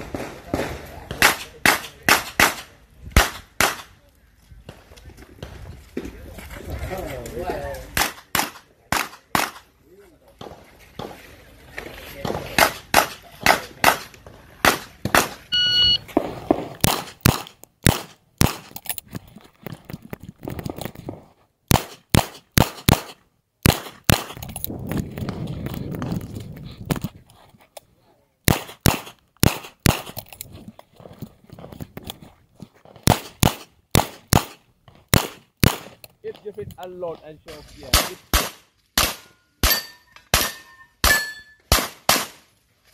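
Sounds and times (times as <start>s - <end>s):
gunshots: 0.0s - 3.9s, 7.9s - 9.7s, 12.2s - 15.4s, 16.1s - 18.7s, 21.7s - 24.4s, 28.5s - 30.2s, 33.0s - 36.0s, 37.9s - 42.5s
shot timer beep: 15.5s - 16.0s.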